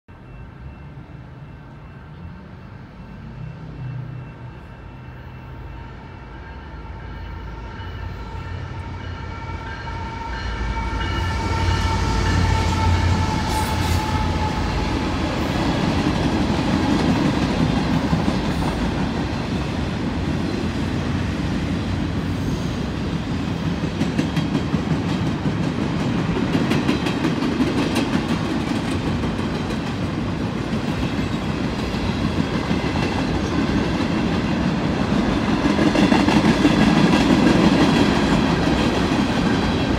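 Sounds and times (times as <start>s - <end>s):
train air horn: 3.7s - 15.6s.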